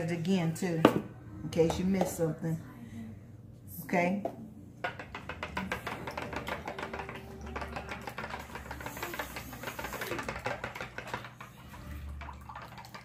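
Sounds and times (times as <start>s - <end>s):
fork beating eggs in bowl: 4.9s - 13.0s.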